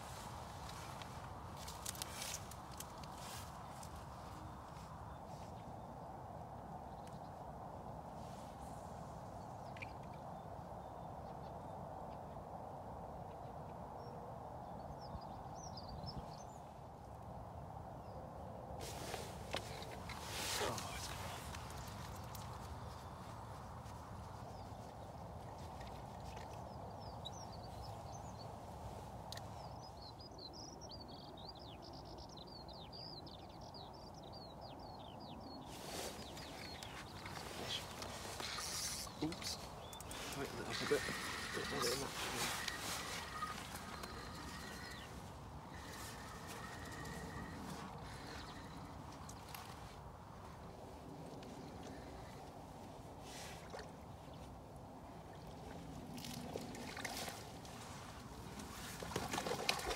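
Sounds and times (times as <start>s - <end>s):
songbird singing: 0.0s - 59.9s
river flowing: 37.0s - 49.0s.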